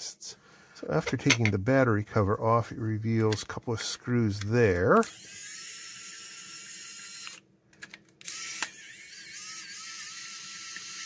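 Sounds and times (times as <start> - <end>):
electric screwdriver whirring: 5.0 - 7.4, 8.2 - 11.0.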